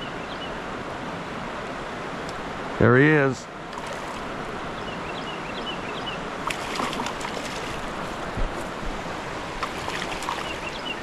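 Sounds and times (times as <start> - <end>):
creek rapid rushing: 0.6 - 5.1, 6.1 - 11.0
fish splashing at surface: 6.4 - 8.0, 9.6 - 10.7.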